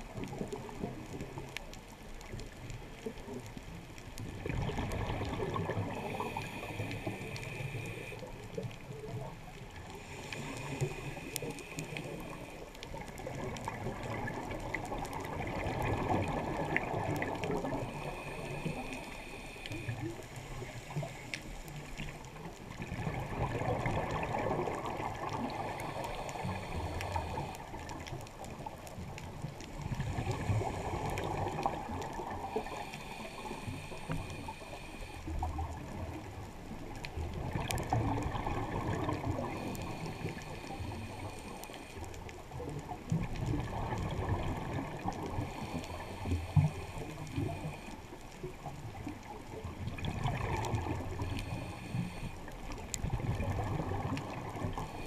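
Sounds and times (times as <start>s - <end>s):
faint hissing inhale: 4.1s - 55.0s
exhaled bubbles rushing: 4.4s - 6.2s, 13.2s - 18.1s, 22.7s - 26.5s, 37.2s - 39.7s, 43.2s - 45.5s, 49.8s - 51.2s.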